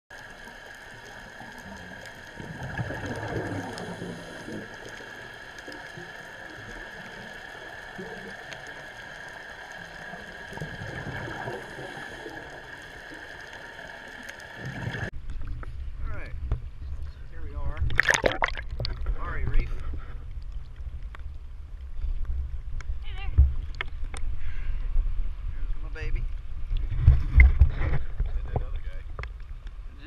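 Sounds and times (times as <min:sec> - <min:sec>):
water gurgling: 0:00.1 - 0:15.1, 0:17.6 - 0:19.7.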